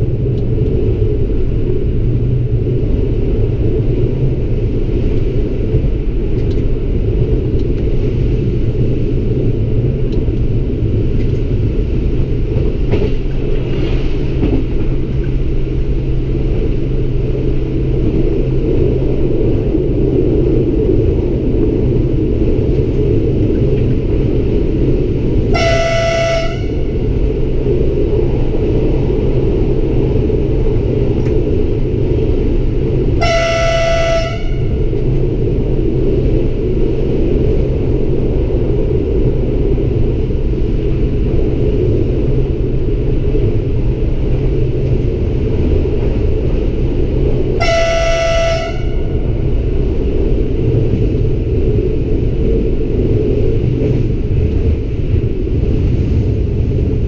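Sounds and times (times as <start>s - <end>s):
railcar engine and wheels rumbling: 0.0s - 57.0s
train horn blasts: 25.4s - 27.1s, 33.1s - 35.0s, 47.5s - 49.4s.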